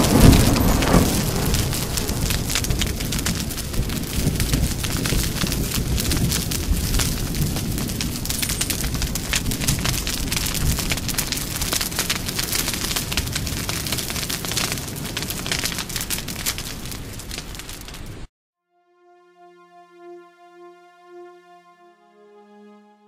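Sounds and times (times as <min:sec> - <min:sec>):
deep rumble: 0:00.0 - 0:11.2
dense crackling: 0:00.0 - 0:18.3.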